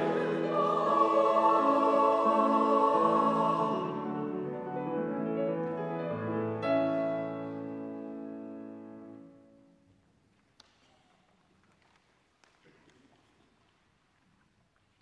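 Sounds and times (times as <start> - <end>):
choir holding a note: 0.0 - 4.6
grand piano playing: 0.0 - 9.6.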